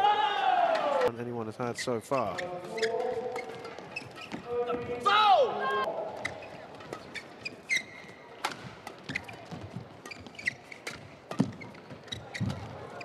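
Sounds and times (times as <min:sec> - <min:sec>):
shoes squeaking on court: 0:01.7 - 0:05.0, 0:05.9 - 0:13.0.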